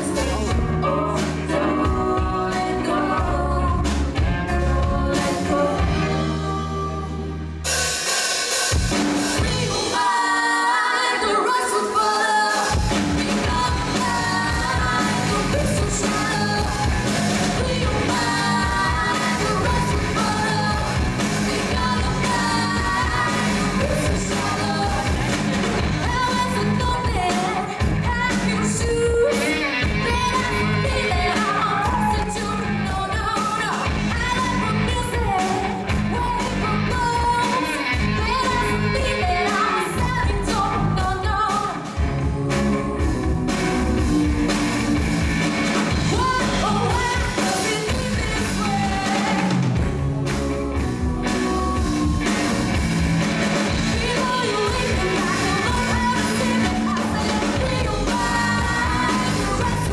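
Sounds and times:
woman singing: 0:00.0 - 0:07.5, 0:09.4 - 0:45.3, 0:45.9 - 0:49.8, 0:51.2 - 0:52.6, 0:53.7 - 0:59.9
electric guitar: 0:00.0 - 0:08.1, 0:08.7 - 0:59.9
bass guitar: 0:00.0 - 0:10.3, 0:12.6 - 0:59.9
drums: 0:00.0 - 0:59.9.

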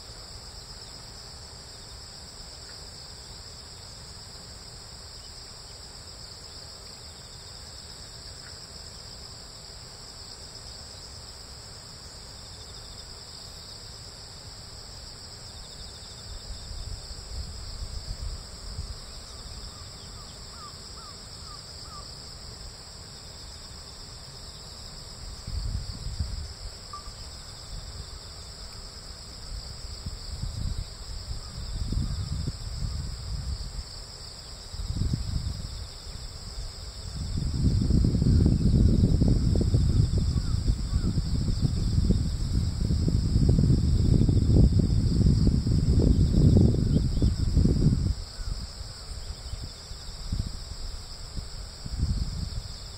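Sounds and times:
insects trilling: 0:00.0 - 0:52.9
wind rumbling on microphone: 0:16.3 - 0:20.2, 0:25.0 - 0:28.2, 0:29.2 - 0:52.9.

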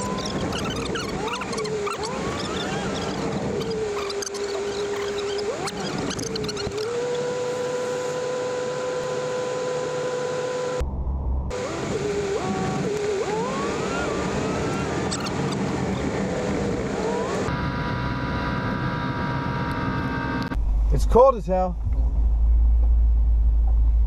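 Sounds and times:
truck engine whine: 0:00.0 - 0:20.9
road noise inside truck cab: 0:00.0 - 0:21.0, 0:21.7 - 0:24.0.

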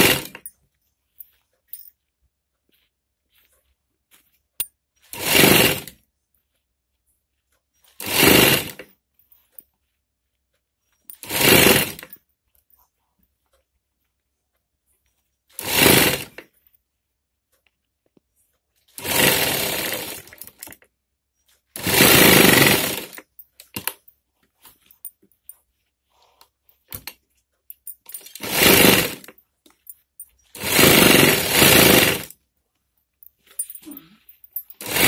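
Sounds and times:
sewing machine stitching: 0:00.0 - 0:00.5, 0:05.0 - 0:06.0, 0:07.8 - 0:08.9, 0:11.1 - 0:12.2, 0:15.5 - 0:16.5, 0:18.9 - 0:20.8, 0:21.7 - 0:24.0, 0:28.1 - 0:29.4, 0:30.5 - 0:32.4, 0:34.6 - 0:35.0.

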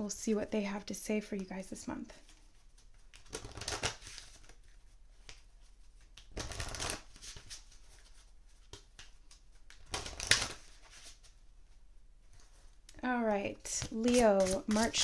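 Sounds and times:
cards shuffling: 0:02.2 - 0:11.4, 0:13.6 - 0:15.0.

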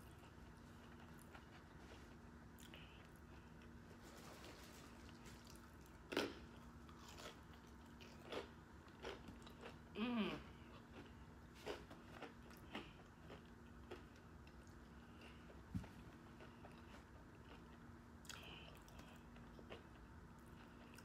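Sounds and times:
crunchy tacos being chewed: 0:00.0 - 0:21.0
person humming: 0:10.0 - 0:10.6.

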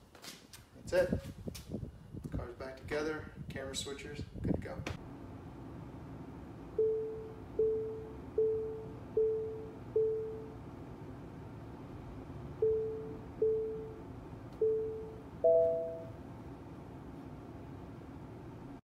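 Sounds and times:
faint steady hum: 0:05.0 - 0:18.8
parking sensor beeps: 0:06.8 - 0:10.6, 0:12.6 - 0:14.0, 0:14.6 - 0:16.2
higher two-note chime: 0:15.4 - 0:16.2.

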